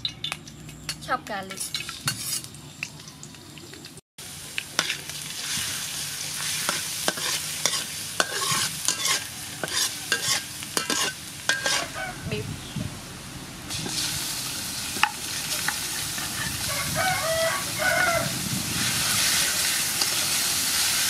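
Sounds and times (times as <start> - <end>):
garlic sizzling in hot oil: 1.2 - 12.0, 13.7 - 21.0
spatula scraping a metal wok: 1.6 - 2.5, 6.4 - 12.0, 15.0 - 17.0.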